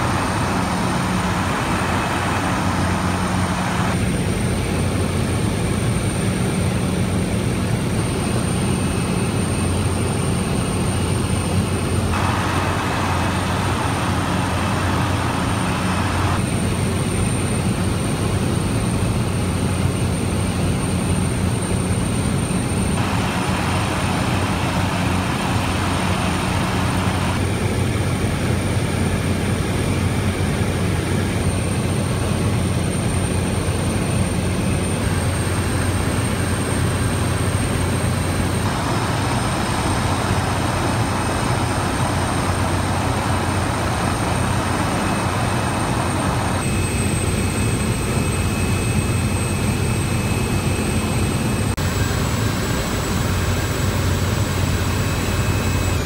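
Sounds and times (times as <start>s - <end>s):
propeller engine drone in cabin: 0.0s - 56.0s.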